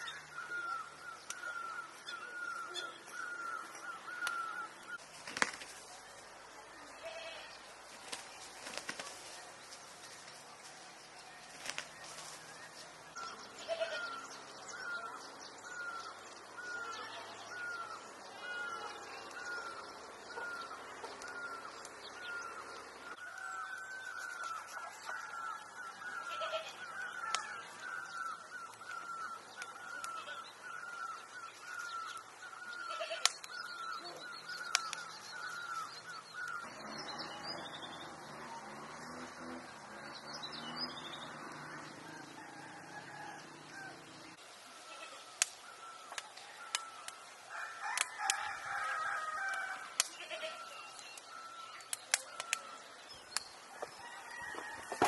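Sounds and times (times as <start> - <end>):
roosters crowing and clucking: 36.6 - 44.4, 46.4 - 51.0, 53.4 - 55.0.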